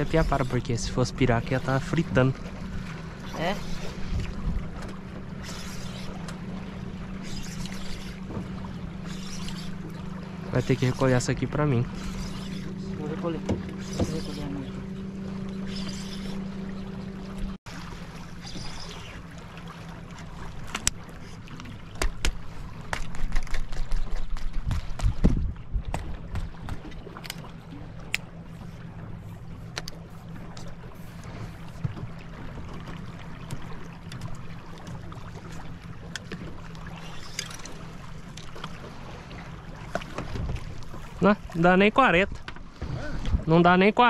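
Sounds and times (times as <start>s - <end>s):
water lapping against a boat: 0.0s - 44.0s
fishing rod and reel clicks: 4.8s - 6.4s, 7.1s - 8.3s, 9.0s - 10.0s, 11.9s - 12.8s, 15.4s - 16.4s, 20.7s - 21.0s, 26.8s - 28.3s, 29.6s - 31.8s, 33.4s - 38.8s
wind on the microphone: 24.4s - 26.9s.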